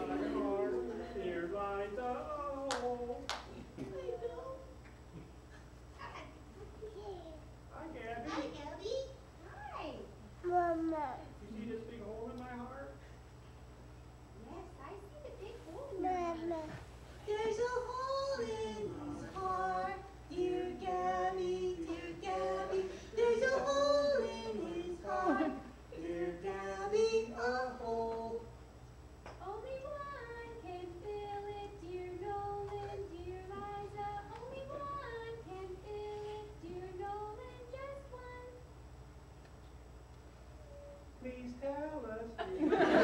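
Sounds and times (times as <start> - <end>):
high voices singing: 0.0 - 3.3, 17.2 - 28.6.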